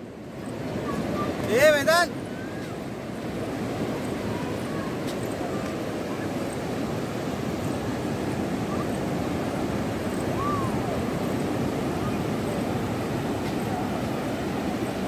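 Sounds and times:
ocean surf on sandy beach: 0:00.0 - 0:15.0
wind buffeting microphone: 0:00.2 - 0:15.0.

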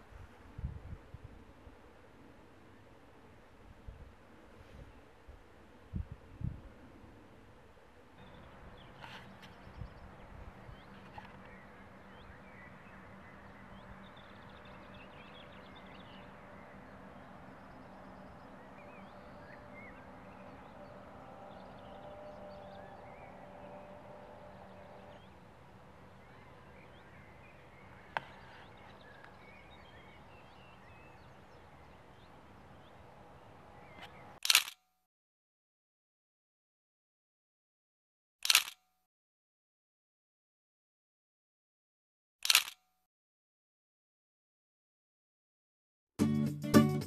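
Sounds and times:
birds chirping: 0:08.2 - 0:34.4.

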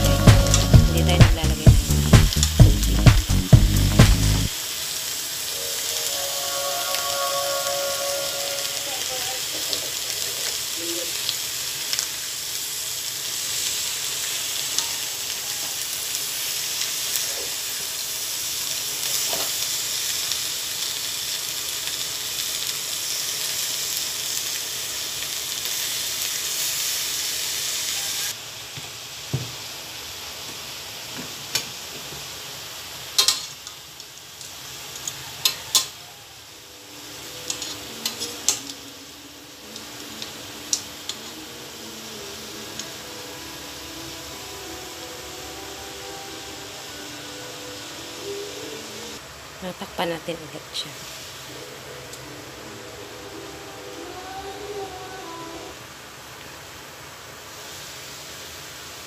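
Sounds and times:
fish sizzling in a wok: 0:00.0 - 0:59.0
metal tongs clicking on pan: 0:33.2 - 0:33.8, 0:37.5 - 0:38.8.

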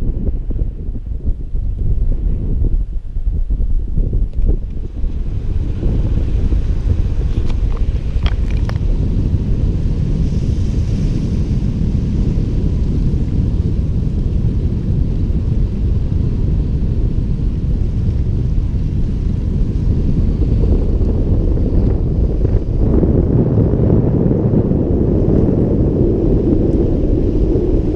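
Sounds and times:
wind buffeting microphone: 0:00.0 - 0:27.9.

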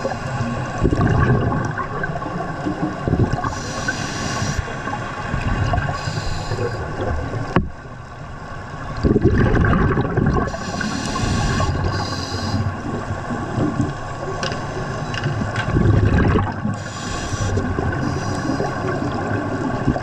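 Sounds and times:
regulator inhalation hiss: 0:03.4 - 0:04.7, 0:05.9 - 0:06.8, 0:10.5 - 0:12.8, 0:16.8 - 0:18.9.

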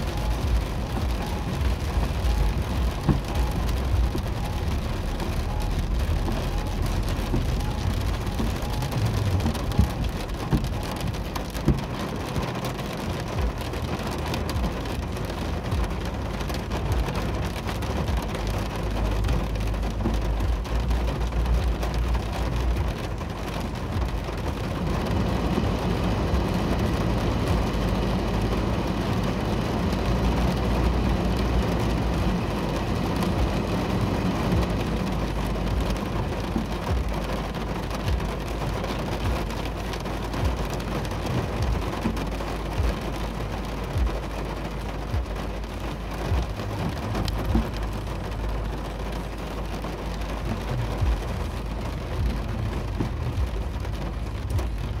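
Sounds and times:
heavy rain on a car roof: 0:00.0 - 0:55.0
low rumble: 0:00.0 - 0:55.0.

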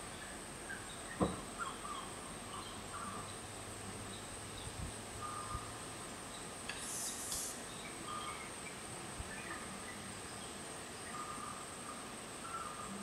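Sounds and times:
faint bird calls: 0:00.0 - 0:03.5, 0:04.1 - 0:05.9, 0:06.7 - 0:13.0
faint hiss with high tone: 0:04.1 - 0:13.0.

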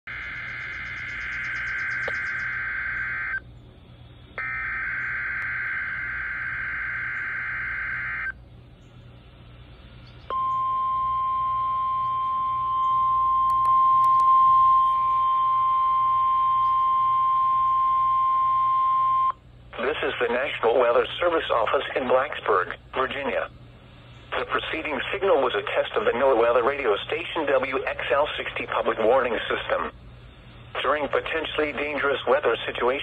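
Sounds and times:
steady warning alarm tone: 0:00.0 - 0:03.5, 0:04.3 - 0:08.4, 0:10.3 - 0:19.4
warbling digital data screech: 0:00.1 - 0:03.4, 0:04.4 - 0:08.3.

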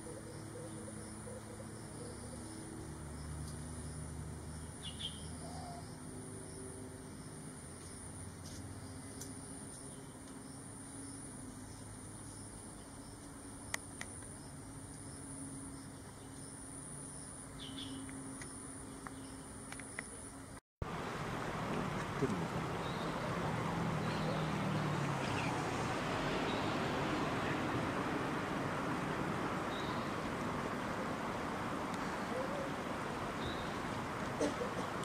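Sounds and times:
bird chirps: 0:04.8 - 0:06.0.

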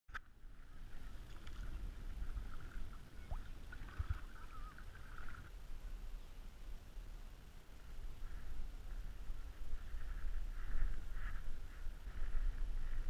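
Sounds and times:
paddle splashing through water: 0:00.9 - 0:05.5.

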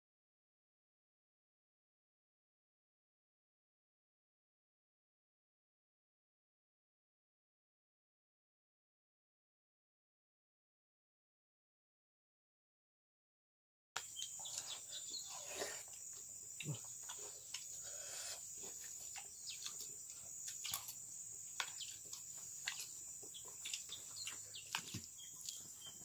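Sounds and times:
insects droning: 0:14.0 - 0:26.0.

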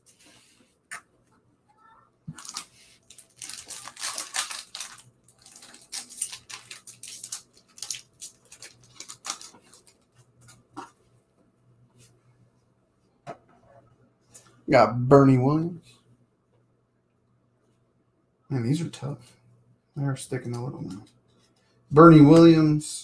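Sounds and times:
foil wrapper crinkling and tearing: 0:02.3 - 0:10.6.

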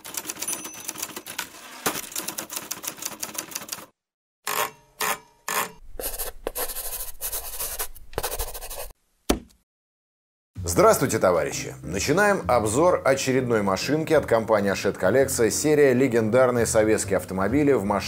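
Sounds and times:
heavy typewriter strikes: 0:00.0 - 0:02.5
typewriter keys clattering: 0:00.0 - 0:03.9.

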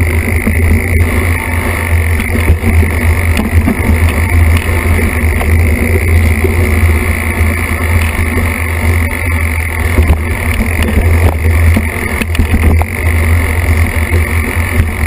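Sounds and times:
wind and trail rumble: 0:00.0 - 0:15.0
bike knocks and rattles: 0:00.2 - 0:05.7.

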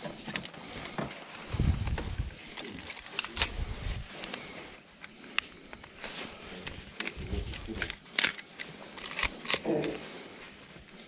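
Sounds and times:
low handling rumble: 0:01.5 - 0:02.4
small objects clicking and knocking: 0:06.6 - 0:10.0.

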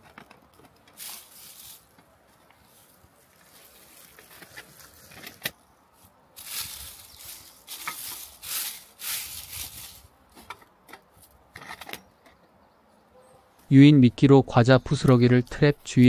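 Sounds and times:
hands rustling dry leaves: 0:00.9 - 0:10.5.

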